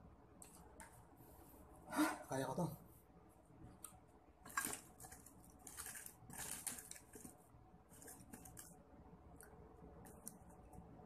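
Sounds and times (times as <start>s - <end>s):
crinkling of wrappers: 4.4s - 8.8s.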